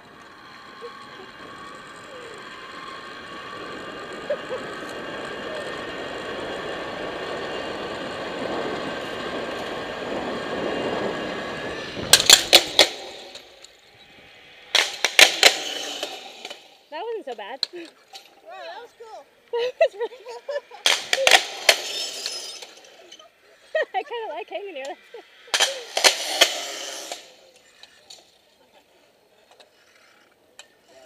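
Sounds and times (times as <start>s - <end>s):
pulley wheels whirring on cable: 0.0s - 16.9s, 20.2s - 24.0s, 24.6s - 28.4s.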